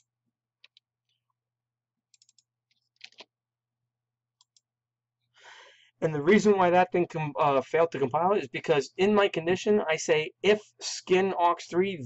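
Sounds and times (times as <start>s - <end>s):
mouse clicks: 2.1s - 2.4s.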